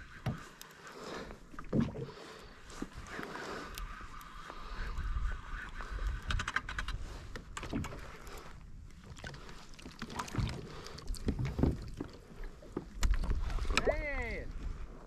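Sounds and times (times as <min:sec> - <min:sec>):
fishing reel whine: 0:03.1 - 0:06.7
fishing reel rattling clicks: 0:06.1 - 0:07.0.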